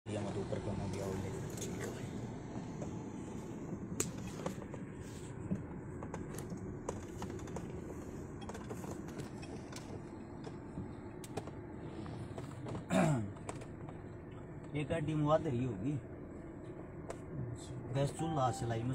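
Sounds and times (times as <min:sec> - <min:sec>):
car engine and road rumble: 0:00.1 - 0:18.9.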